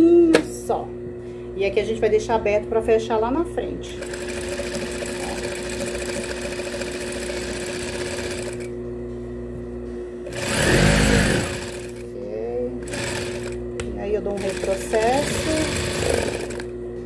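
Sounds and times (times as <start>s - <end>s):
sewing machine motor hum: 3.9s - 8.8s, 10.2s - 16.8s
sewing machine stitching: 4.0s - 8.7s, 10.3s - 12.0s, 12.8s - 13.6s, 14.4s - 16.7s.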